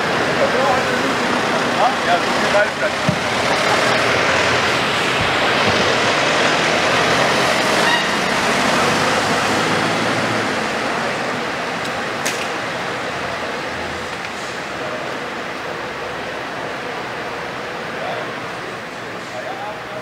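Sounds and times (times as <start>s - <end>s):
truck engine and tyre noise: 0.0s - 20.0s.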